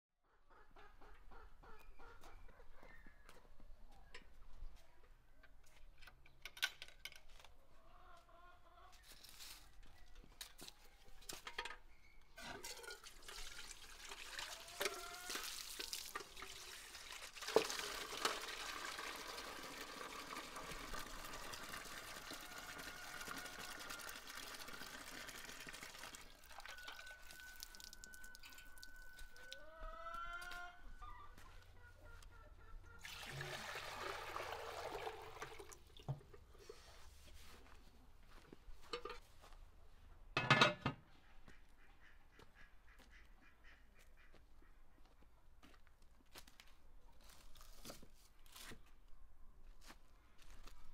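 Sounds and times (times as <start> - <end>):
chickens clucking: 0.5 - 4.4, 7.6 - 9.2, 26.2 - 33.1
water splashing into metal bowl: 12.5 - 22.4, 33.0 - 36.2.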